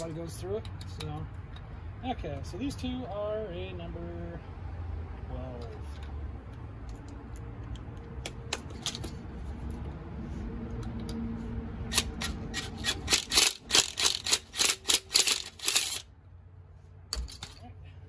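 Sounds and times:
impact wrench bursts: 11.9s - 16.1s.

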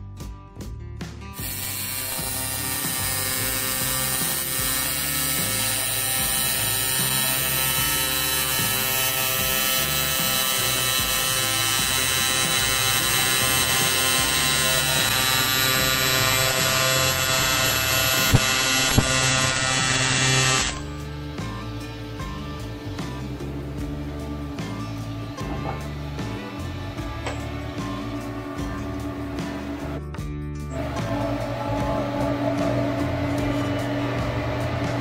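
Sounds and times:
welding arc buzzing: 1.4s - 21.2s.

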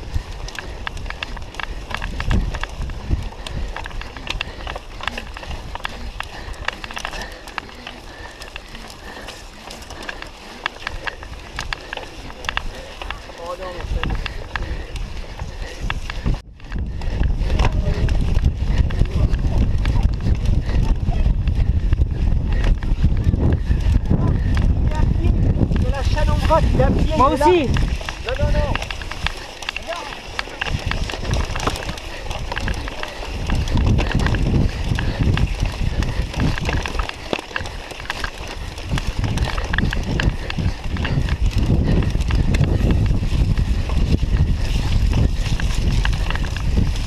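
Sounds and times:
bike rattling over bumpy grass: 0.0s - 47.0s
wind buffeting microphone: 0.0s - 47.0s
frame and chain clicks: 22.6s - 47.0s.

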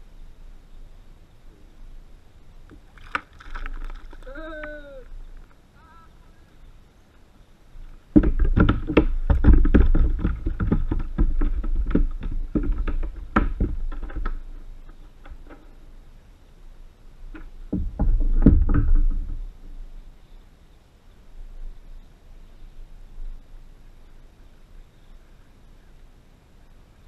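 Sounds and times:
knocking on plastic kayak: 8.1s - 14.4s, 17.4s - 19.4s.

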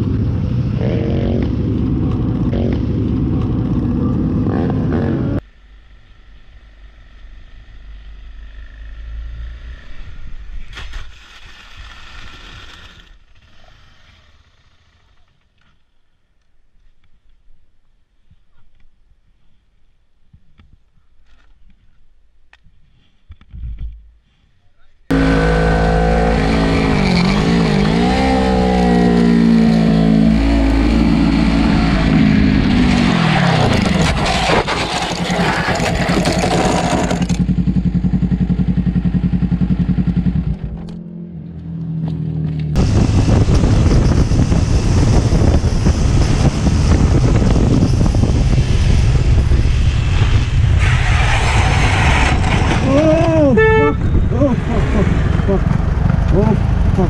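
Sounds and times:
motorcycle engine revving: 0.6s - 5.9s, 25.1s - 57.0s
motorcycle scraping on ground: 7.0s - 15.8s, 25.1s - 57.0s
wind rushing: 42.8s - 57.0s.

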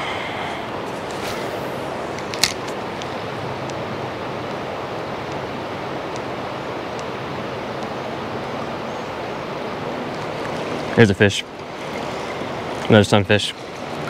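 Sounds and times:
flowing river water: 0.0s - 14.0s.

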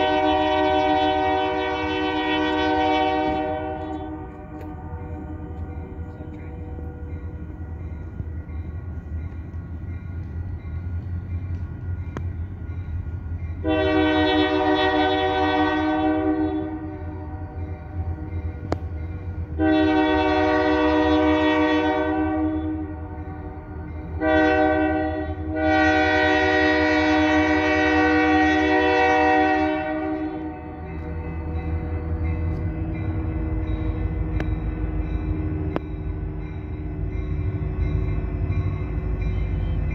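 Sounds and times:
locomotive air horn: 0.0s - 5.6s, 13.6s - 18.1s, 19.5s - 30.8s
low rumble of locomotive: 0.0s - 39.9s.

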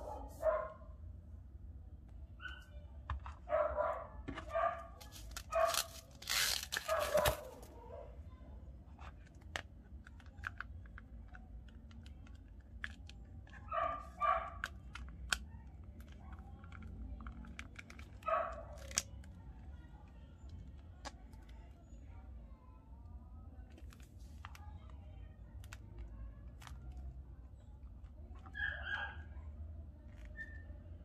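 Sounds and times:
plastic packaging tearing: 5.0s - 7.6s.

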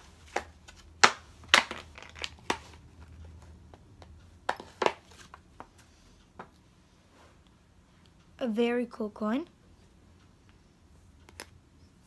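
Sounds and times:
plastic packaging crinkling: 1.6s - 2.6s.

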